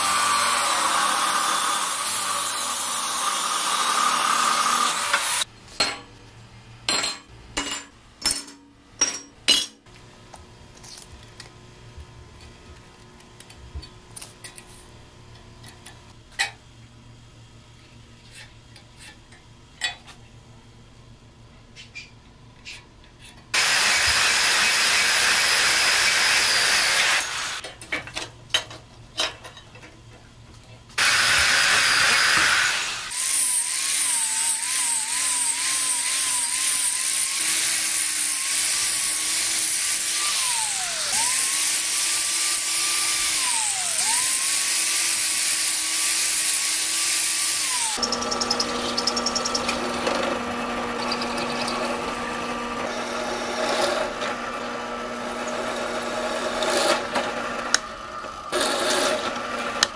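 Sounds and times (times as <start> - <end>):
angle grinder grinding steel: 0.0 - 5.5, 23.6 - 27.6, 31.0 - 57.2
drill press humming: 47.6 - 59.0.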